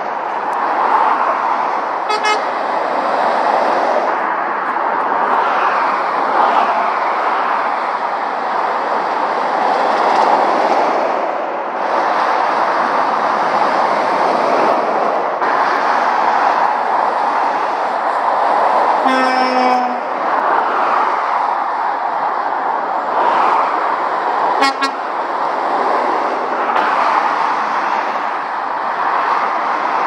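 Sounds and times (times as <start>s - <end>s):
motorway traffic passing: 0.0s - 30.0s
horn blast: 2.1s - 2.5s, 19.0s - 20.1s, 24.6s - 25.0s.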